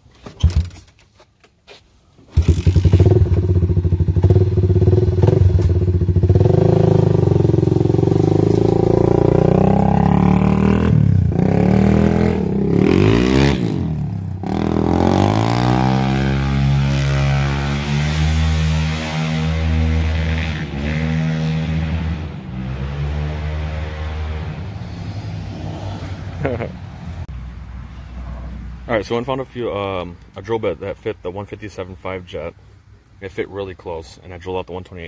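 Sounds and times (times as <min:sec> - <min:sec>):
quad bike engine revving: 0:02.3 - 0:25.0.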